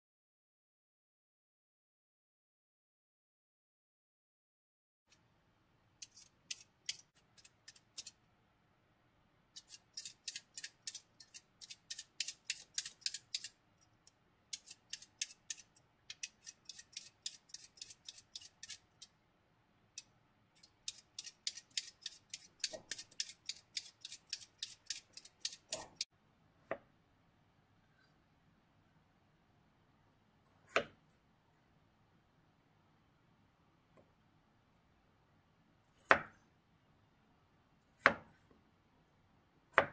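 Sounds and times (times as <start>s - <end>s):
peeler scraping potato skin: 6.0s - 8.2s, 9.6s - 13.9s, 14.5s - 19.1s, 20.6s - 26.1s.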